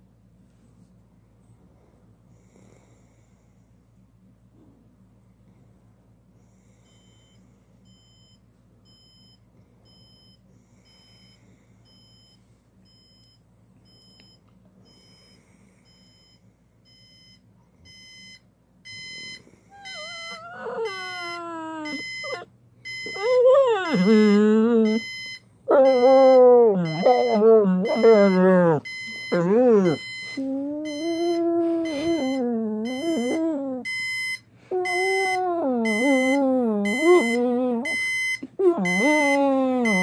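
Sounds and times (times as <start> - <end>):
alarm clock beeping: 14.9 - 40.0
dog whining: 19.7 - 34.0, 34.7 - 40.0.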